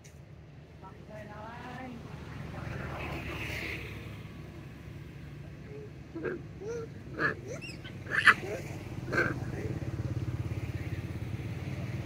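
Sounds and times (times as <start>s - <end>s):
vehicle engine rumble: 0.0s - 12.0s
voice-like calls: 5.6s - 10.0s.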